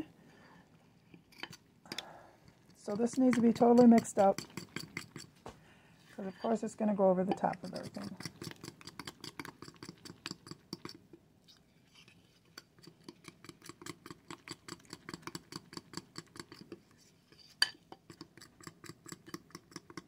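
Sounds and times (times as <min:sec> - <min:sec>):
spoon scraping glass bowl: 0:02.5 - 0:05.4, 0:06.2 - 0:15.2.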